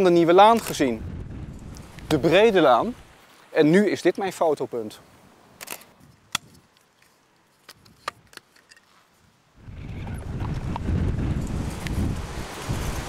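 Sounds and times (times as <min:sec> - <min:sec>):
wind buffeting microphone: 0:00.4 - 0:03.2, 0:09.6 - 0:13.0.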